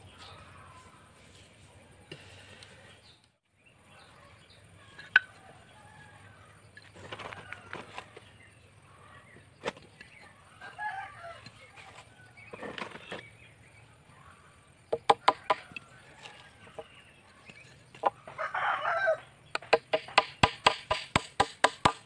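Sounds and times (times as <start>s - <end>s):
hammer striking nail: 19.6s - 22.0s.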